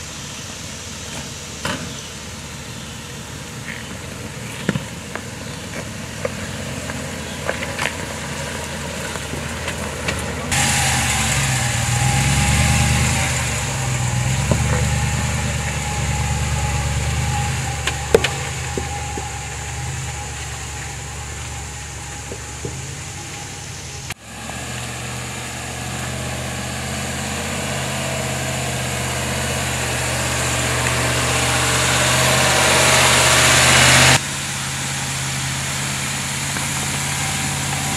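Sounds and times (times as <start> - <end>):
car engine at low revs: 0.0 - 37.9
stones clicking under tyres: 3.6 - 10.5, 17.4 - 23.5.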